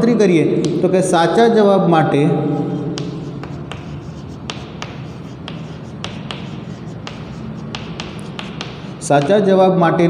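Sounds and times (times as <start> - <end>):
chalk tapping and scratching: 0.6 - 1.4, 2.6 - 9.5.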